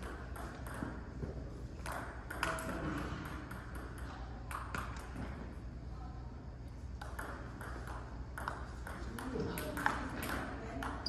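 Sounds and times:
table tennis ball hits: 0:00.0 - 0:01.1, 0:01.8 - 0:05.2, 0:07.0 - 0:11.0
steady low hum: 0:00.0 - 0:11.0.

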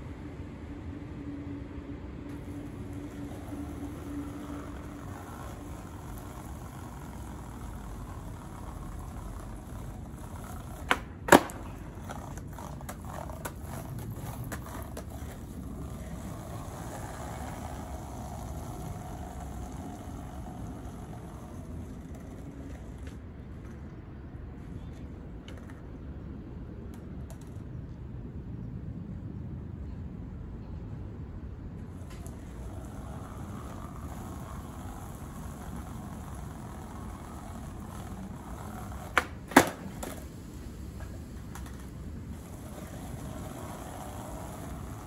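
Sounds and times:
low outdoor background hum: 0:00.0 - 0:45.0
skateboard clacking on pavement: 0:02.3 - 0:23.8, 0:24.8 - 0:25.9, 0:26.9 - 0:27.7, 0:31.9 - 0:45.0
skateboard wheels rattling: 0:02.3 - 0:24.0, 0:31.8 - 0:45.0.

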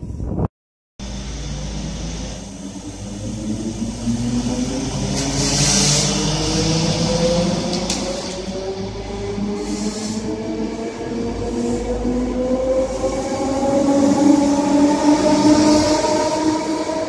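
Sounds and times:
electric train motors whining: 0:01.0 - 0:17.0.

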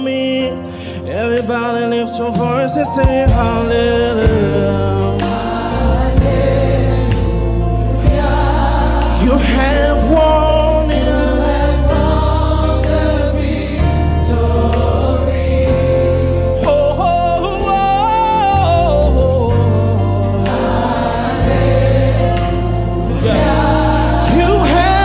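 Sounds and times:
man singing lead: 0:00.0 - 0:12.1, 0:15.5 - 0:20.6, 0:23.2 - 0:25.0
bass notes: 0:02.3 - 0:25.0
choir singing: 0:02.9 - 0:25.0.

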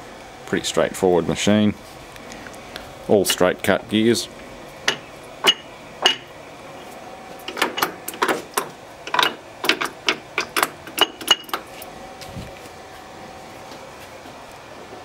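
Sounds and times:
lathe gears clacking: 0:04.8 - 0:06.3, 0:07.4 - 0:11.7.

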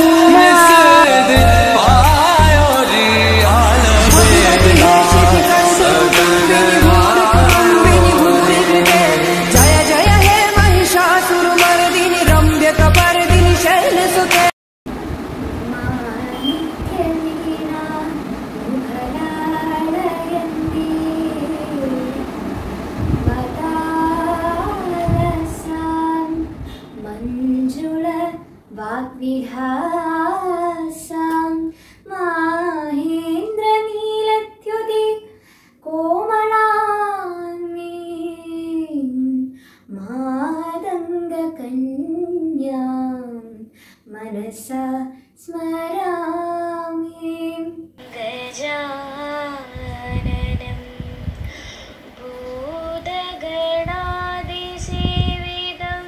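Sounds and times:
girl singing solo: 0:15.6 - 0:22.4, 0:23.0 - 0:35.3, 0:52.2 - 0:56.0
second girl singing: 0:15.7 - 0:22.4, 0:52.2 - 0:56.0.

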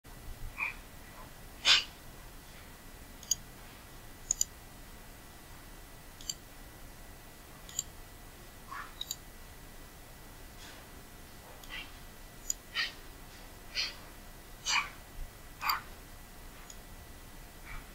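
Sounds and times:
computer mouse clicking: 0:03.2 - 0:03.4, 0:04.3 - 0:04.5, 0:06.2 - 0:06.4, 0:07.7 - 0:07.9, 0:09.0 - 0:09.2.

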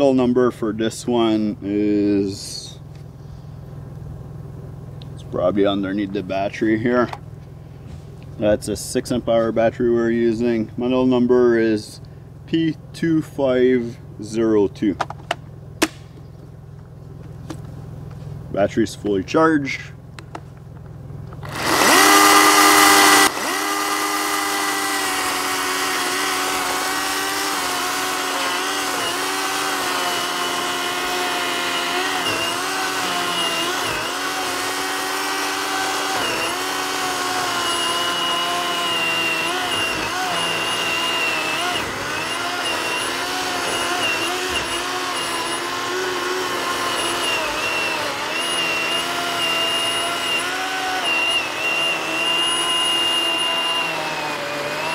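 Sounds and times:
chainsaw cutting wood: 0:15.8 - 0:16.0, 0:21.4 - 0:54.9.

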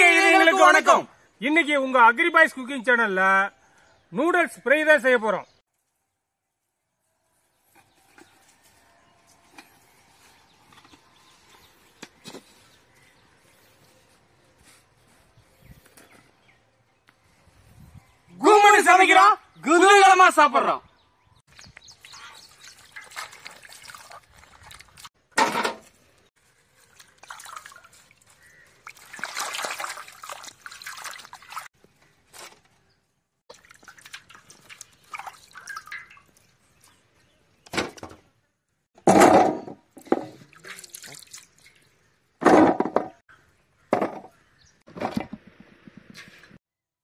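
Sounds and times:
water sloshing and splashing in bowl: 0:22.0 - 0:25.1, 0:26.5 - 0:31.7, 0:33.5 - 0:37.1, 0:40.0 - 0:42.0.

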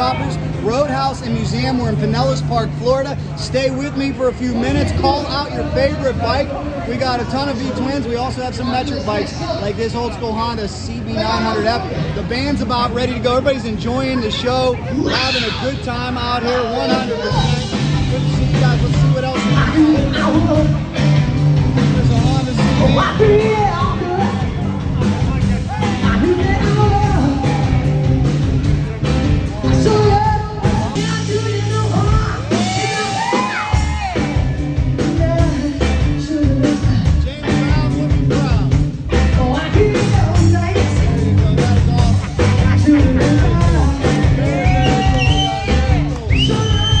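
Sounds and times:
live rock band playing: 0:00.0 - 0:47.0
woman singing: 0:29.7 - 0:32.6, 0:35.0 - 0:37.0.

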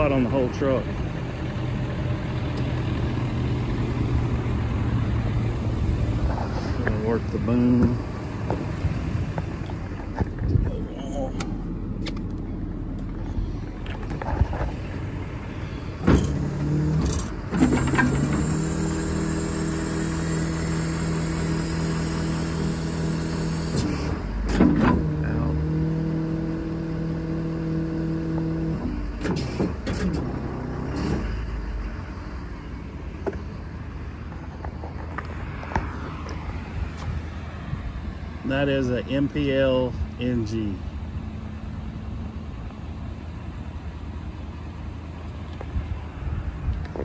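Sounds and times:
diesel engine running: 0:00.0 - 0:47.0
hydraulic boom humming: 0:11.0 - 0:25.8
hydraulics clunk: 0:15.6 - 0:18.8, 0:23.7 - 0:25.2, 0:28.4 - 0:31.7.

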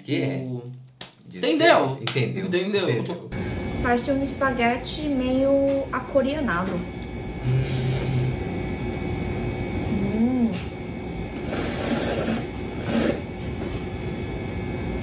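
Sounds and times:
person humming: 0:07.4 - 0:08.4, 0:09.9 - 0:10.7
noodles slurped: 0:11.4 - 0:13.3.

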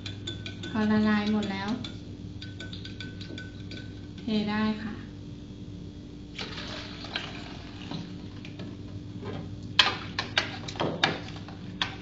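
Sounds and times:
spoon clinking against glass: 0:00.0 - 0:04.0.

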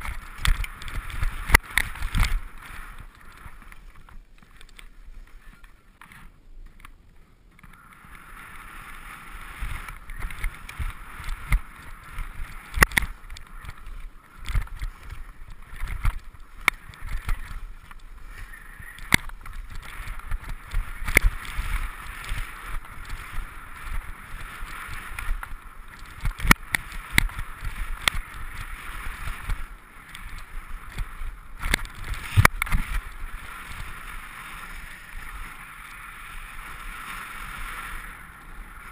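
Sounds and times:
skis scraping over snow: 0:00.0 - 0:38.9
wind rumbling on microphone: 0:00.0 - 0:38.9
sharp clicks and knocks: 0:12.7 - 0:18.1.

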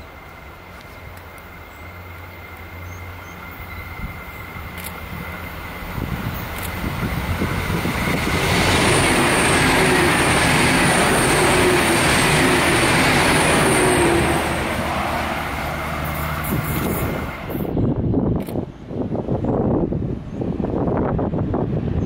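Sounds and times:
train engine hum: 0:00.0 - 0:22.0
train wheels rolling on rails: 0:00.0 - 0:22.0
high wheel squeal: 0:07.8 - 0:15.1.

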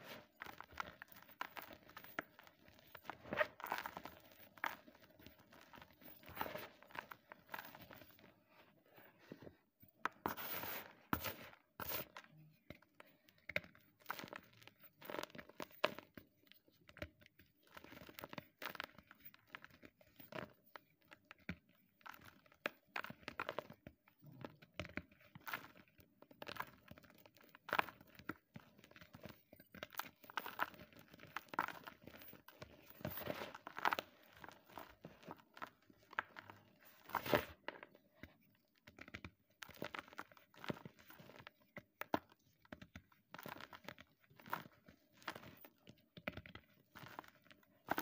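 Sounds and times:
chalk crunching and crumbling: 0:10.1 - 0:12.3, 0:25.3 - 0:48.0.

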